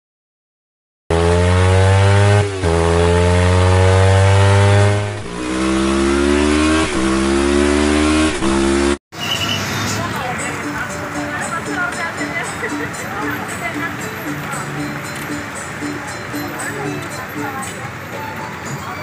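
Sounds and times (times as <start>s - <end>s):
motorcycle engine accelerating: 1.1s - 9.0s.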